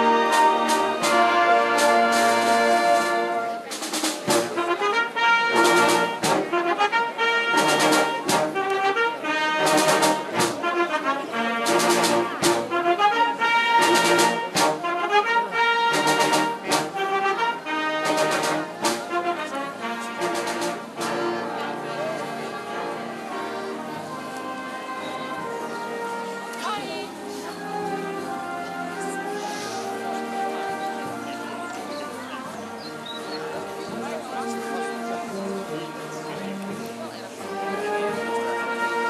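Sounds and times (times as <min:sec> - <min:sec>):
drum strokes: 0:00.0 - 0:06.7, 0:07.5 - 0:09.0, 0:09.6 - 0:10.8, 0:11.6 - 0:12.9, 0:13.7 - 0:15.1, 0:15.8 - 0:17.3, 0:18.0 - 0:19.5, 0:20.1 - 0:21.3
slow brass music: 0:00.0 - 0:39.0.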